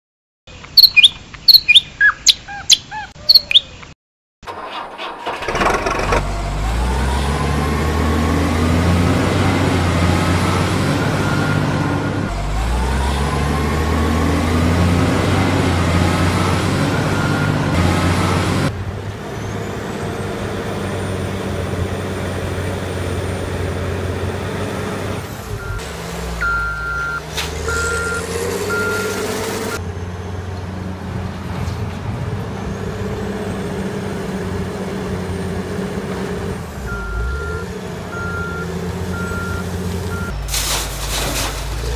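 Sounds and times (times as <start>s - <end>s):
birds chirping: 0.5s - 4.0s
truck engine revving: 4.4s - 41.9s
reversing beeps: 11.0s - 12.3s, 16.9s - 17.6s, 25.6s - 25.8s, 26.4s - 29.2s, 36.9s - 40.3s.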